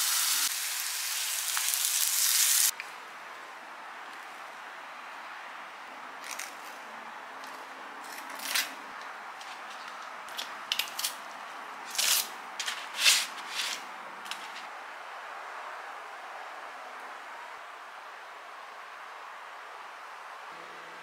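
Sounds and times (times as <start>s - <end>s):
steady hiss: 0.0s - 2.8s.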